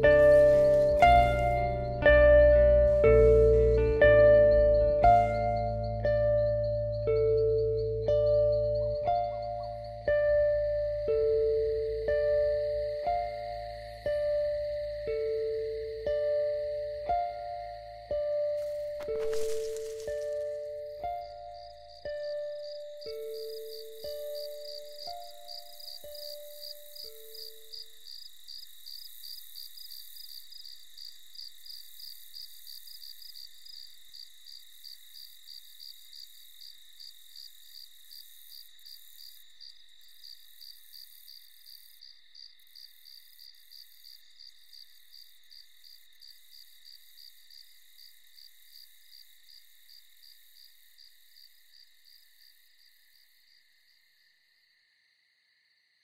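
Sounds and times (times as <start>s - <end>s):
crickets chirping: 0.0s - 56.0s.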